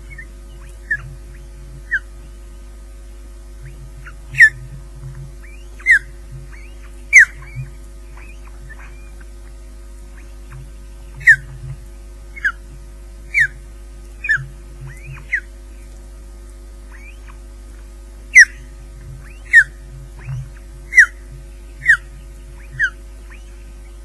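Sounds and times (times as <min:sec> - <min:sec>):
osprey whistling calls: 0:00.0 - 0:02.3, 0:03.6 - 0:04.8, 0:05.4 - 0:09.3, 0:10.1 - 0:12.6, 0:13.3 - 0:13.6, 0:14.2 - 0:15.9, 0:16.9 - 0:17.5, 0:18.3 - 0:24.0.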